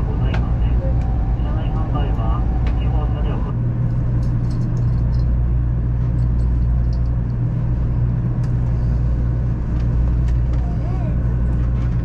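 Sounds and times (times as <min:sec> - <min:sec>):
train wheels rumbling on rail: 0:00.0 - 0:12.0.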